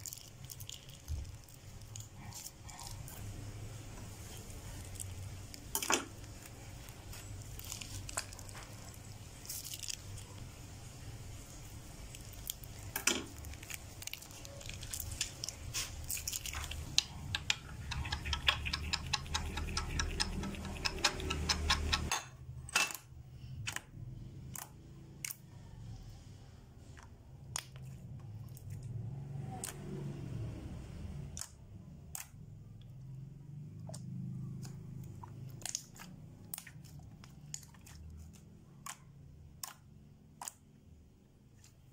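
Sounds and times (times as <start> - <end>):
spatula scraping glass bowl: 17.7 - 22.1.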